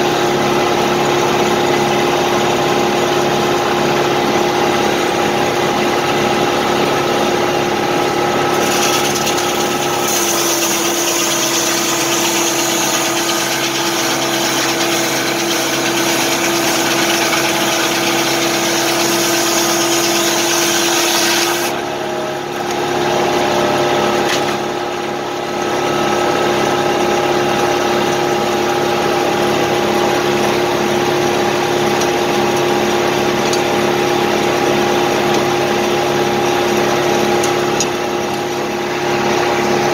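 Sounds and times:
saw blade cutting log: 8.5s - 21.8s.

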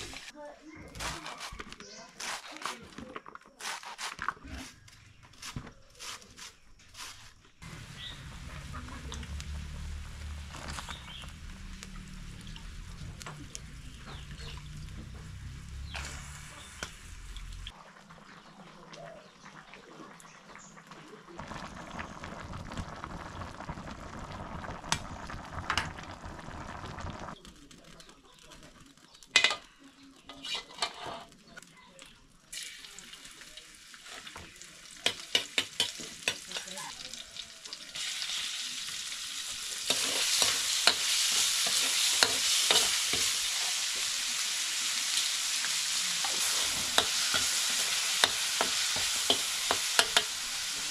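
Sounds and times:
food sizzling in a pan: 0.0s - 0.4s, 7.6s - 27.6s, 32.5s - 50.9s
utensil scraping a pan: 30.3s - 31.5s, 39.8s - 43.7s.

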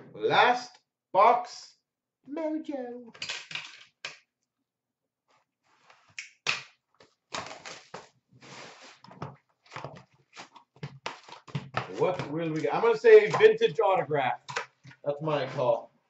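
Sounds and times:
wrapper and cardboard crinkling: 7.0s - 13.4s.

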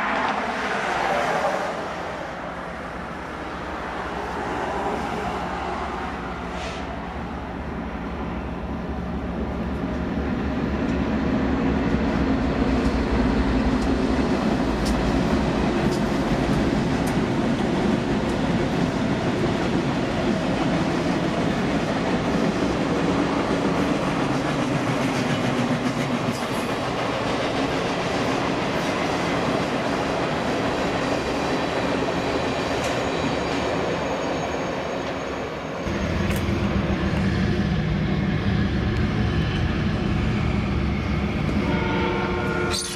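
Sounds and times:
train wheels rumbling: 0.0s - 42.9s.

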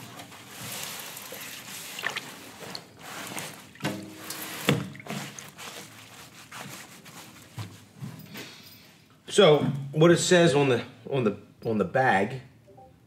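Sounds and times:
water sloshing and dripping: 0.4s - 7.7s.

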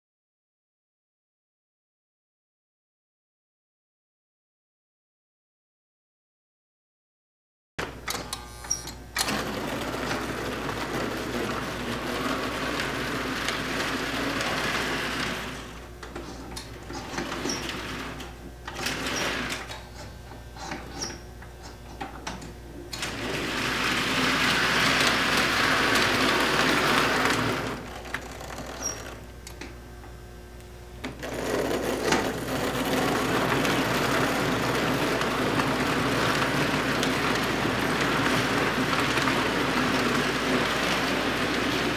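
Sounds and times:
wheels rattling over rails: 9.2s - 29.2s, 31.1s - 41.9s.

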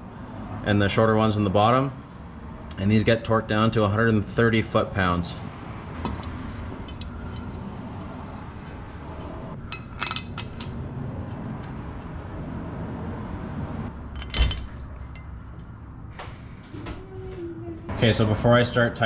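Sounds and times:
metallic clinks: 9.6s - 10.8s, 14.0s - 16.0s
metal-on-metal clunk: 14.1s - 15.4s.

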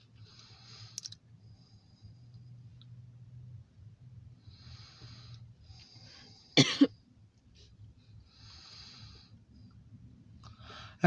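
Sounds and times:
faint low hum: 0.0s - 11.0s
person coughing: 6.6s - 6.9s.

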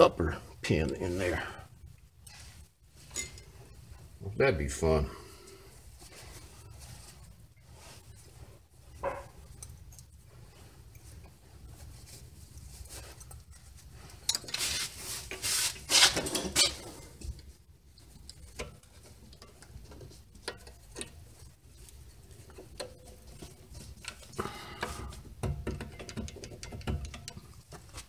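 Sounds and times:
rustling of gloved hands: 5.6s - 25.4s.

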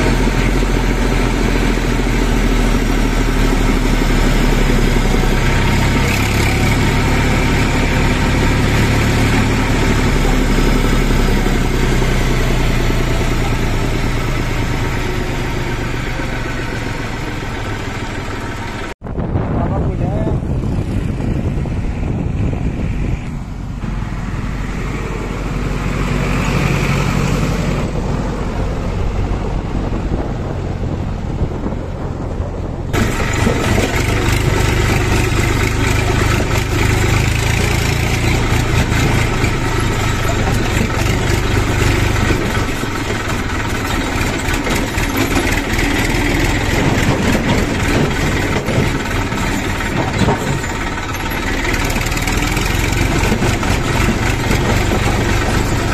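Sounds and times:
road vehicle engine noise: 0.0s - 55.9s
tractor diesel engine running: 0.0s - 55.9s.

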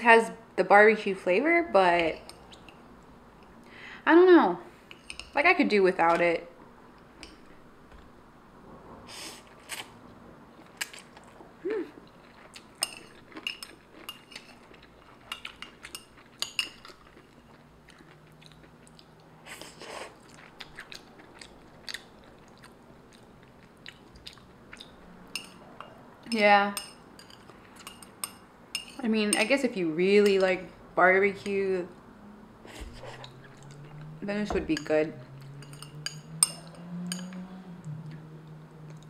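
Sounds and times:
chewing noodles: 12.0s - 25.0s
slurping: 32.7s - 34.2s.

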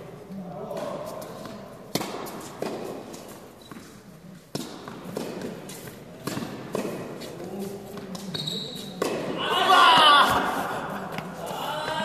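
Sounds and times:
tennis ball struck by rackets: 0.7s - 3.9s, 4.5s - 7.3s, 9.0s - 9.4s
tennis ball bouncing on hard court: 0.7s - 9.4s.

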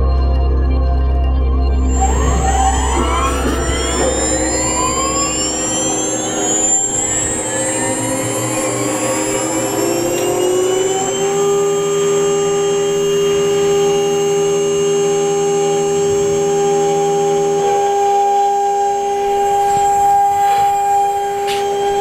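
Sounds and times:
router spindle whining: 1.9s - 22.0s.

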